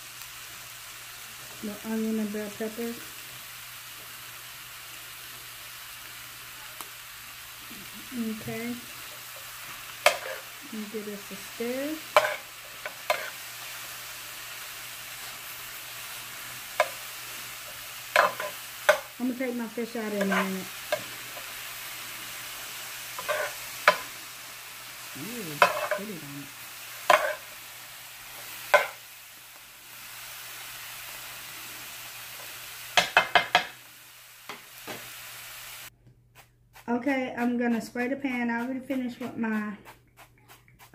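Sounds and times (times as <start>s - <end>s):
vegetables sizzling in a skillet: 0.0s - 35.9s, 36.8s - 40.9s
spatula scraping a pan: 8.1s - 24.4s, 25.5s - 29.0s
spatula knocking against pan: 33.0s - 33.8s.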